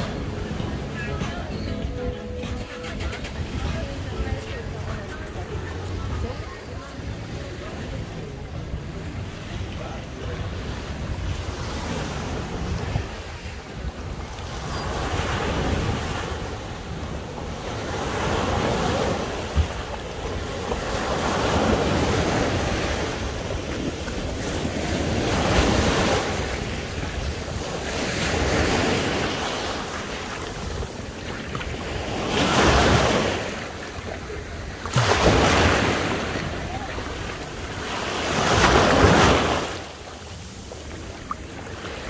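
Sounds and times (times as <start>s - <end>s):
sea waves washing onto shore: 0.0s - 42.0s
wind rumbling on microphone: 0.0s - 42.0s.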